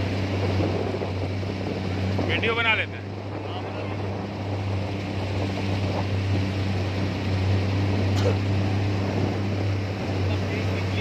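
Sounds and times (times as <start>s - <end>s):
outboard motor humming: 0.0s - 11.0s
water rushing: 0.0s - 11.0s
wind: 0.0s - 11.0s.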